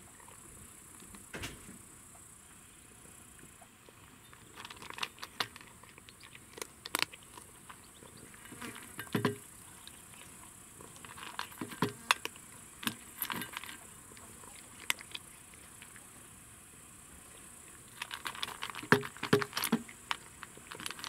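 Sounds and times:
cat crunching dry kibble: 4.0s - 16.2s, 17.3s - 21.0s.

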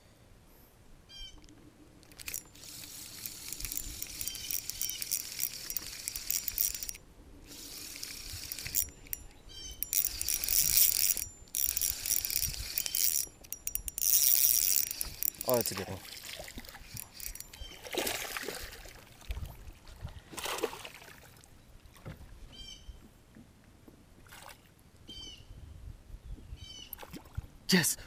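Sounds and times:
fishing reel whirring: 2.0s - 18.8s.

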